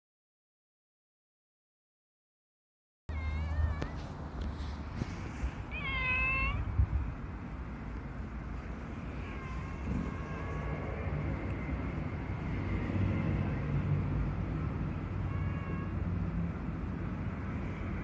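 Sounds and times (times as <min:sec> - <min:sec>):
cat meowing: 0:03.1 - 0:04.1, 0:05.7 - 0:06.7, 0:09.0 - 0:11.6, 0:15.2 - 0:16.1.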